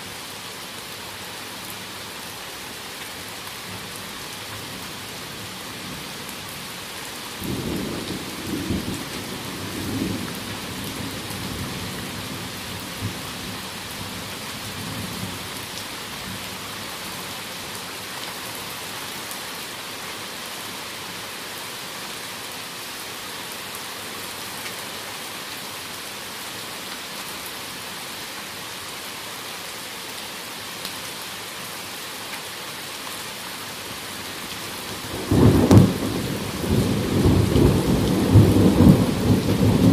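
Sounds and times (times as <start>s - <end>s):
heavy rain: 0.0s - 39.9s
thunder rumbling: 35.1s - 39.9s.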